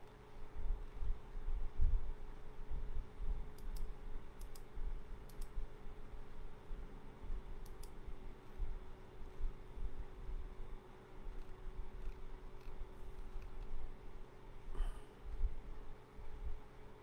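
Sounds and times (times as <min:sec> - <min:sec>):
steady low hum: 0:00.0 - 0:17.0
computer mouse clicks: 0:03.5 - 0:05.6, 0:07.6 - 0:08.0, 0:11.3 - 0:13.8.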